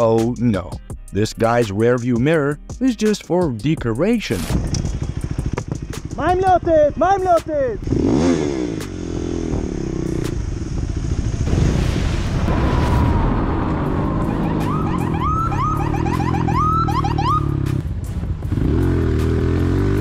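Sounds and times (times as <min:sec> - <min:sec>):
motorcycle engine running: 0:04.5 - 0:11.5, 0:14.3 - 0:20.0
police siren whooping: 0:12.5 - 0:17.6.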